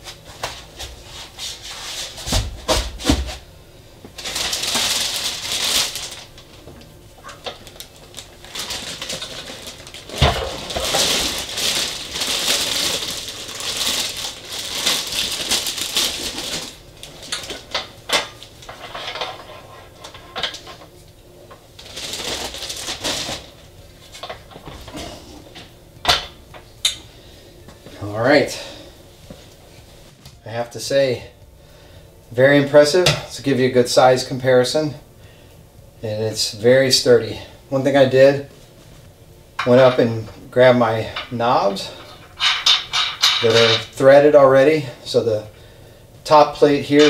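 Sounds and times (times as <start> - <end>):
plastic wrapping crinkling: 4.1 - 19.3, 21.7 - 24.4.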